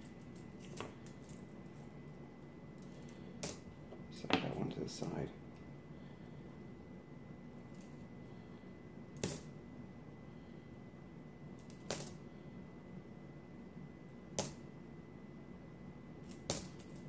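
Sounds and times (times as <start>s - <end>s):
coins clinking: 9.2s - 9.5s, 11.6s - 12.2s, 16.3s - 17.0s.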